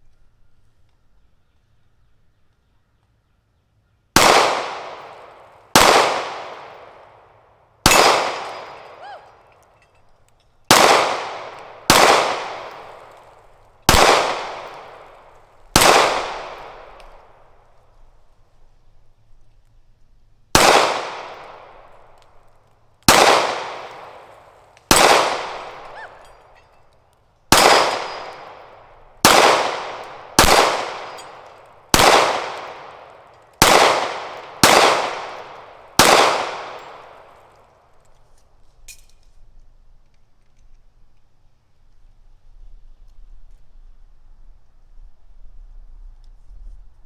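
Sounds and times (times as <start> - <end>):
pistol shots with echo: 4.2 - 9.4, 10.7 - 17.6, 20.5 - 22.3, 23.0 - 26.7, 27.5 - 37.7.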